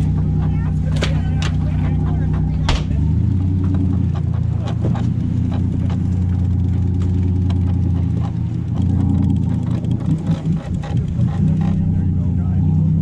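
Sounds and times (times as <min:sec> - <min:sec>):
boat engine humming: 0:00.0 - 0:13.0
clicks and knocks: 0:00.9 - 0:01.7, 0:02.4 - 0:06.1.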